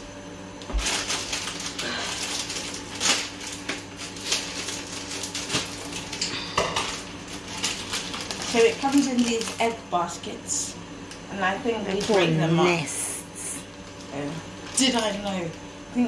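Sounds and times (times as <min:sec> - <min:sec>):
kitchen items clinking and clattering: 0:04.2 - 0:09.7.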